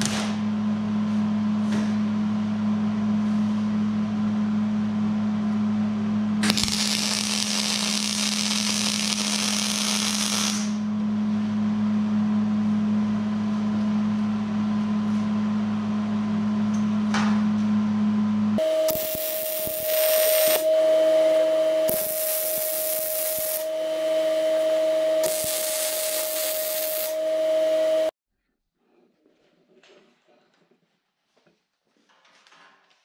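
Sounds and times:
loud even hiss: 6.4 - 10.8, 18.8 - 20.7, 21.9 - 23.7, 25.2 - 27.2.

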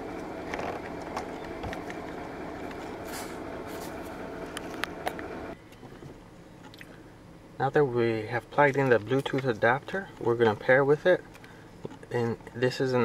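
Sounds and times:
car engine idling: 0.0 - 7.6.

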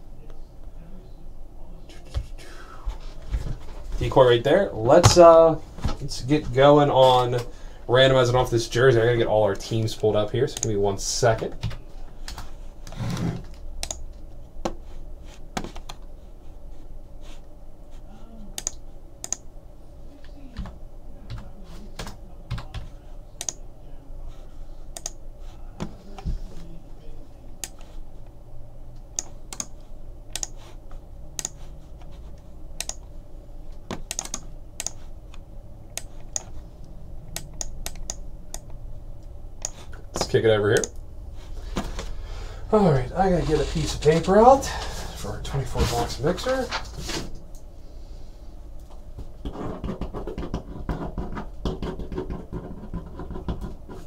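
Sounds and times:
keyboard key presses: 33.9 - 35.0.

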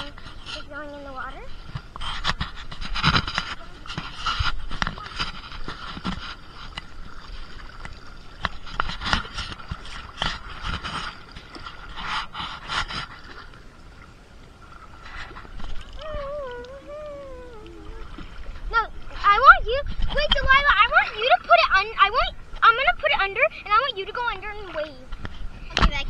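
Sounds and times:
feet wading through shallow water: 0.0 - 25.7
person speaking: 16.0 - 18.1.

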